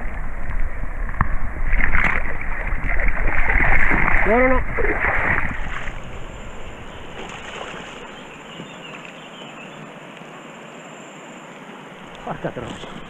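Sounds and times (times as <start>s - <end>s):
shallow river water rippling: 0.0s - 13.0s.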